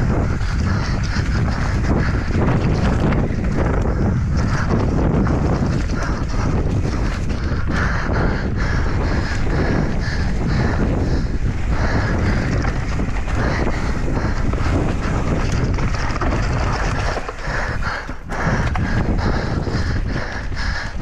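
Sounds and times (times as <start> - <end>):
mountain bike rattling on dirt trail: 0.0 - 21.0
wind buffeting microphone: 0.0 - 21.0.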